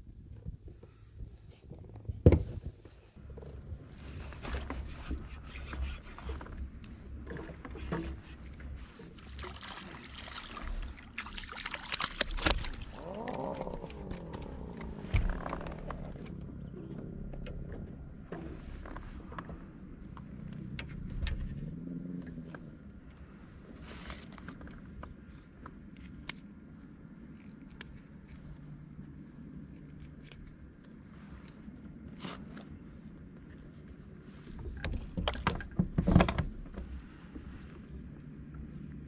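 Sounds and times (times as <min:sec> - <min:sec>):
fish knocking aboard kayak: 0:11.8 - 0:18.6, 0:34.7 - 0:37.0.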